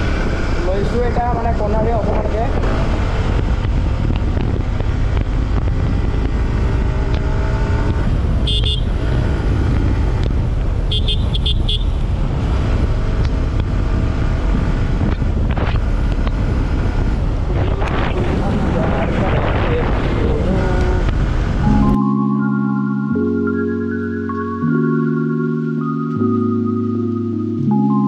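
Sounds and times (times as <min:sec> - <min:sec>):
wind buffeting microphone: 0:00.0 - 0:10.9, 0:12.0 - 0:21.8
motorcycle engine cruising: 0:00.0 - 0:22.0
horn tooting: 0:08.4 - 0:09.0, 0:10.9 - 0:12.0.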